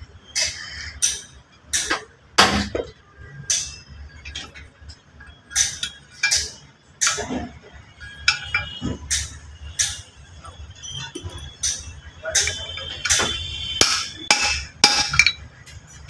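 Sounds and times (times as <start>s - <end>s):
metallic clinks and taps: 8.0s - 10.0s, 11.1s - 15.9s.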